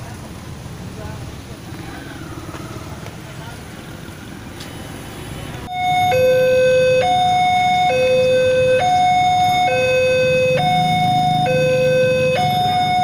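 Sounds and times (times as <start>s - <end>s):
low traffic hum: 0.0s - 13.0s
two-tone crossing alarm: 5.6s - 13.0s.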